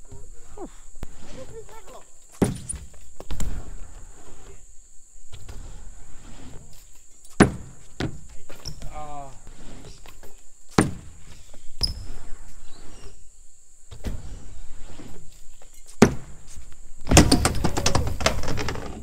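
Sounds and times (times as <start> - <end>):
bike clattering and scraping: 0.0 - 4.6, 5.2 - 19.0
bike tyres rolling on ramp: 0.0 - 19.0
bike landing knocks: 2.3 - 3.6, 7.3 - 9.0, 10.7 - 11.2, 15.7 - 19.0.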